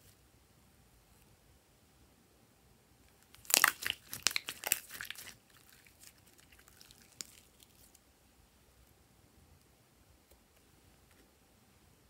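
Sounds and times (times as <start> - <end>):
slime crackling and clicking: 3.3 - 7.5.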